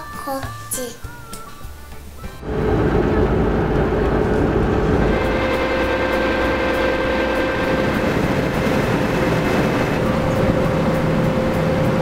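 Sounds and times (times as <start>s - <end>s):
boat engine running: 2.4s - 12.0s.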